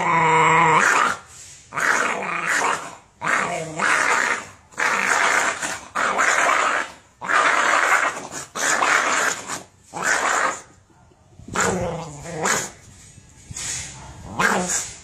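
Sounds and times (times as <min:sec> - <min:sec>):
dog growling and snarling: 0:00.0 - 0:10.7, 0:11.5 - 0:12.8, 0:14.3 - 0:15.0.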